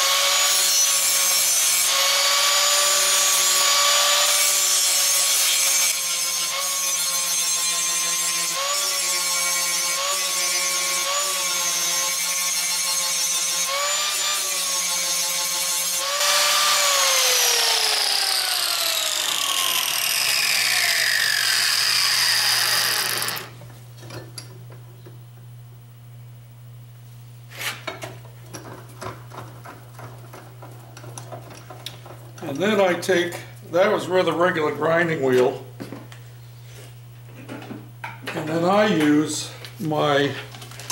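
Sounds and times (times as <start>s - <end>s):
angle grinder grinding metal: 0.0s - 23.6s, 29.4s - 35.6s, 38.2s - 40.9s.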